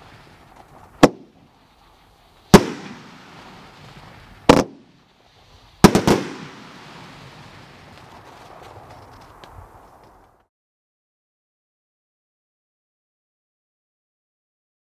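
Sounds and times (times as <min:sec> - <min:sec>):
firework bangs echoing: 0:00.0 - 0:01.5, 0:02.5 - 0:05.1, 0:05.8 - 0:08.2.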